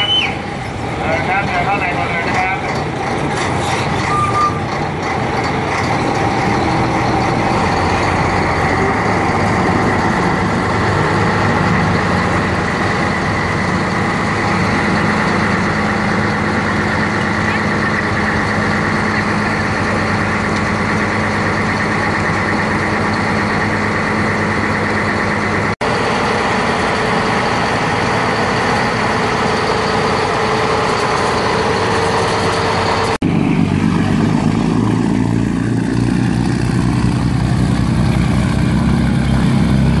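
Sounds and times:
boat diesel engine drone: 0.0s - 40.0s
propeller churning water: 0.0s - 40.0s.

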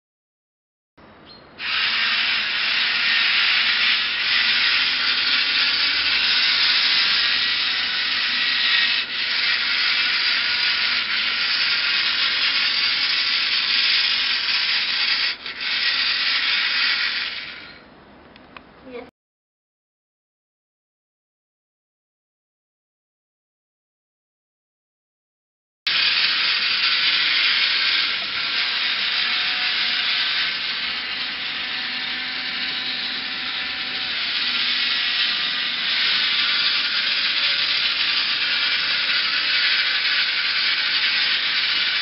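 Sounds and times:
electric gearmotors whirring: 1.6s - 17.8s, 25.9s - 42.0s.

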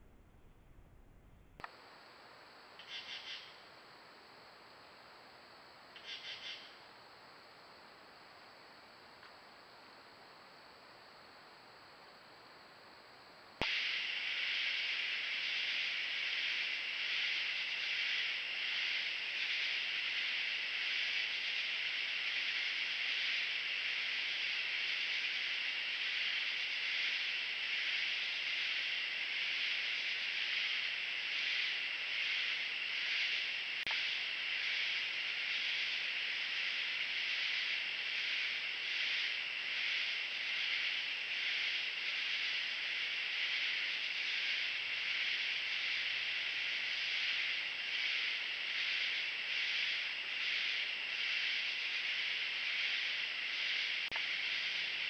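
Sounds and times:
katydids and crickets chirping: 1.6s - 55.0s.

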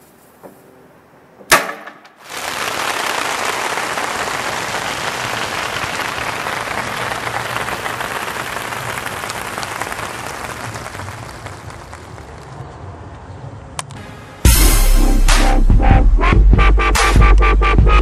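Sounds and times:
firecracker bang: 1.5s - 8.9s
steady hiss: 2.0s - 12.5s.

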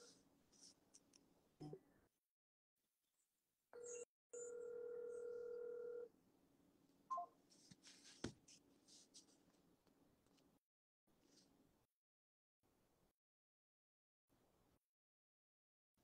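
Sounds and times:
phone call tone: 3.8s - 6.1s.

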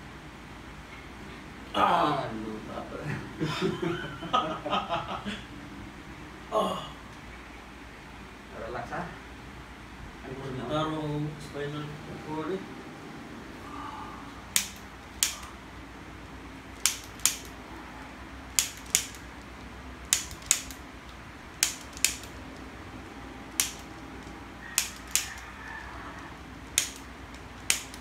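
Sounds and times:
spring-loaded instrument clicks: 14.6s - 15.5s, 16.8s - 17.5s, 18.6s - 19.2s, 20.0s - 20.8s, 21.6s - 22.4s, 23.6s - 25.4s, 26.7s - 28.0s.

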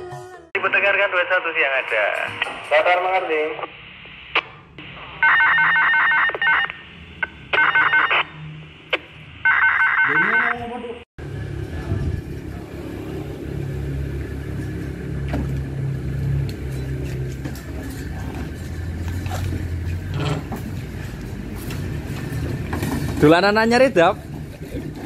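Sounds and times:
electronic ringing tone: 7.6s - 8.1s, 9.4s - 10.6s
steady low rumble: 11.2s - 17.6s.

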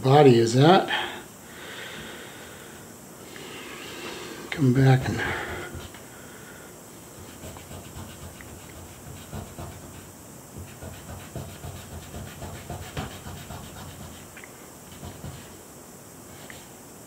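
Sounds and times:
fingertip rubbing on paper: 7.2s - 15.6s.

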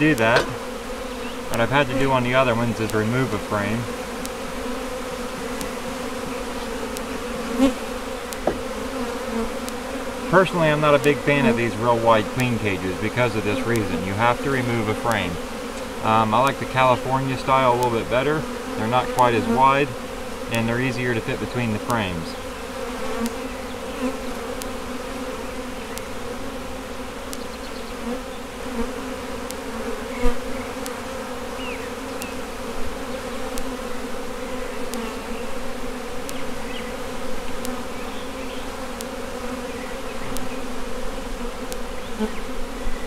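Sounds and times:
bees buzzing: 0.0s - 43.0s
sharp knock: 8.4s - 8.7s.

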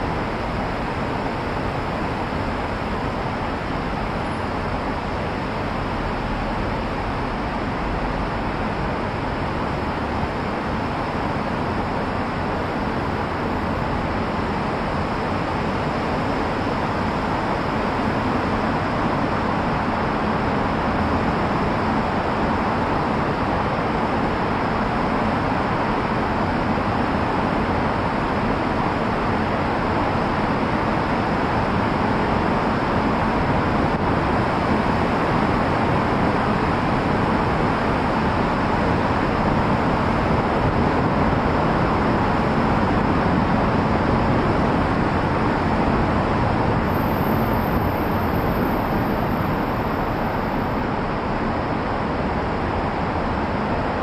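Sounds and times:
car road noise rumble: 0.0s - 54.0s.

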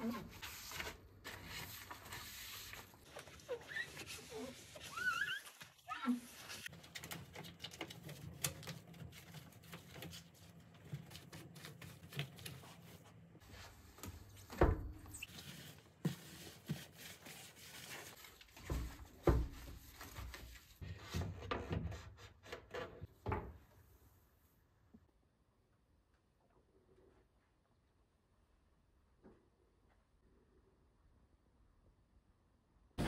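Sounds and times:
cloth scrubbing an oven: 8.9s - 21.2s.

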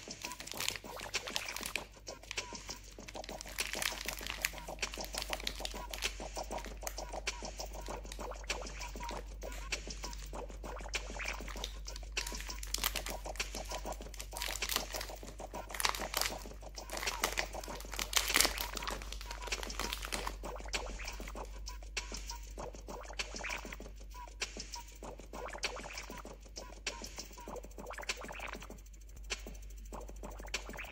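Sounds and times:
wrapper crinkling and tearing: 0.0s - 9.2s, 11.3s - 21.3s.

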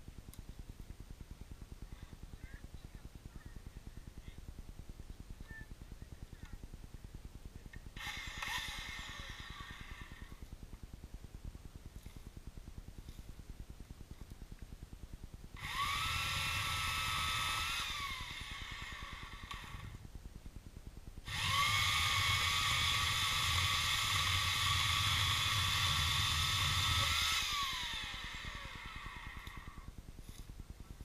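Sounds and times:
electric saw motor whine: 8.0s - 10.2s, 15.6s - 20.0s, 21.3s - 29.9s.

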